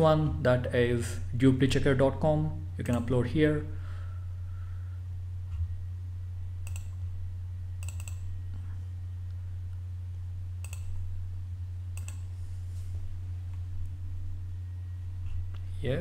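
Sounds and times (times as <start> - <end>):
low electrical hum: 0.0 - 16.0
computer mouse clicking: 6.6 - 7.0, 7.8 - 8.3, 10.6 - 11.0, 12.0 - 12.3.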